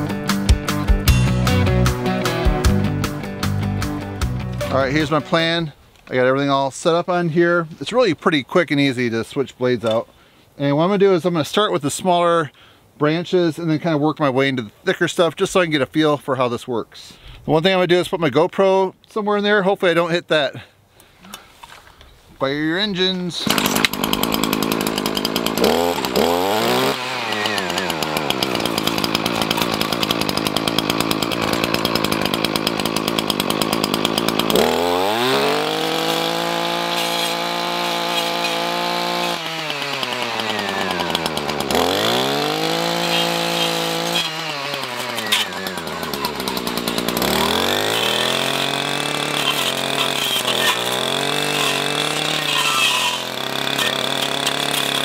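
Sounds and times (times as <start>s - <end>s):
brush cutter engine revving: 0.0s - 5.6s, 23.4s - 55.0s
blade cutting brush: 23.4s - 55.0s.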